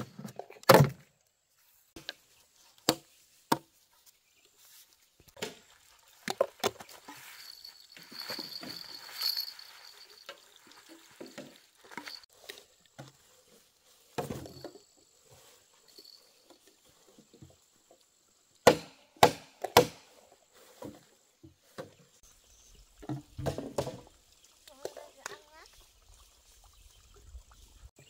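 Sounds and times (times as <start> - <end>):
scattered knocks and handling: 5.3 - 13.3
blade chopping wood: 18.6 - 20.1.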